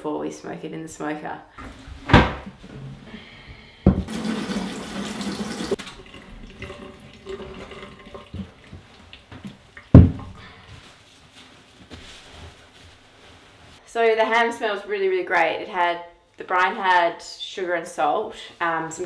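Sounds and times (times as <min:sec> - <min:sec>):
water splashing in a steel sink: 0:04.0 - 0:09.6.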